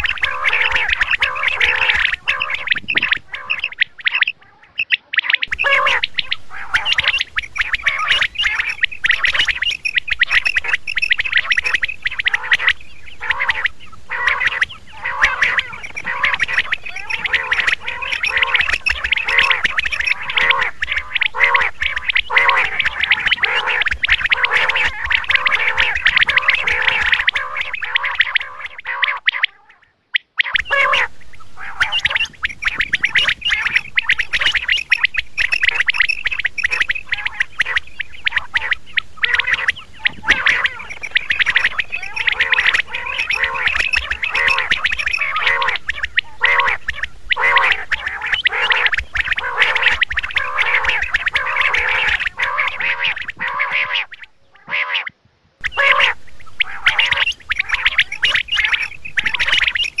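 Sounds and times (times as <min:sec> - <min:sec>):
quail calling: 0:00.0 - 1:00.0.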